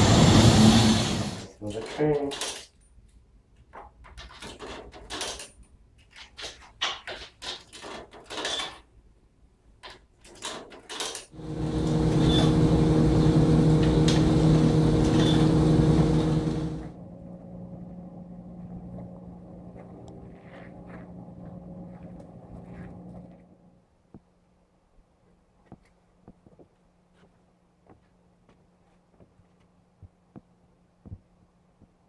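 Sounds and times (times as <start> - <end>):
dryer drum tumbling hum: 11.4 - 23.7
faint steady low hum: 11.4 - 32.0.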